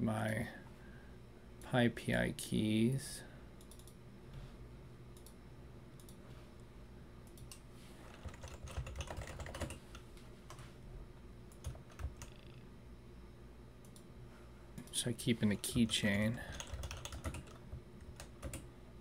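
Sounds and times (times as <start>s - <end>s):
computer keyboard typing: 7.3s - 10.6s, 11.5s - 12.6s, 15.4s - 18.7s.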